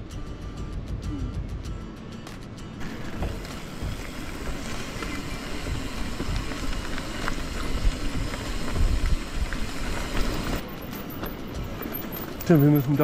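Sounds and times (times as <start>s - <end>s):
wind buffeting microphone: 2.8s - 10.7s
bike tyres rolling on gravel: 2.8s - 13.0s.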